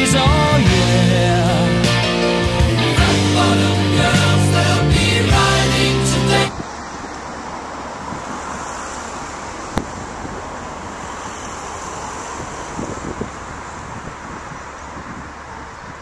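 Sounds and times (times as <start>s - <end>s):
road traffic noise: 0.0s - 16.0s
wind on microphone: 9.8s - 16.0s.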